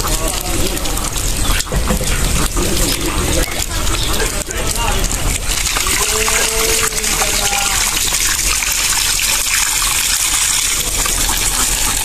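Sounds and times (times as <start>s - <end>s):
small fish flipping in water: 0.0s - 12.0s
water gushing and splashing: 0.0s - 12.0s.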